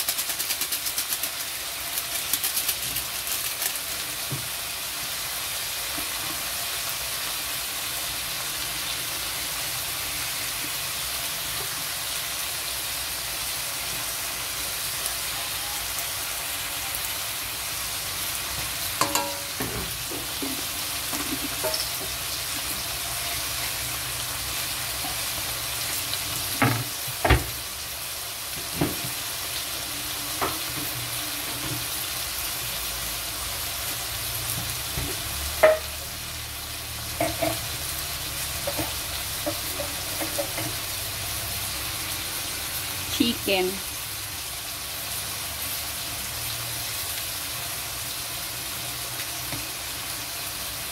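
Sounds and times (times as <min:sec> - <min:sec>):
vegetables sizzling in a wok: 0:00.0 - 0:50.9.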